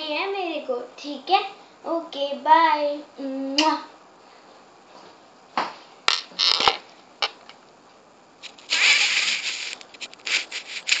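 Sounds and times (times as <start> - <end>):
phone rubbing scrape: 8.4 - 11.0.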